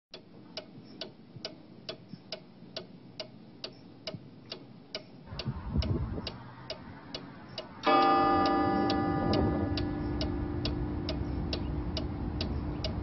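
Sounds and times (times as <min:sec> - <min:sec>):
clock ticking: 0:00.1 - 0:13.0
low rumble: 0:05.3 - 0:13.0.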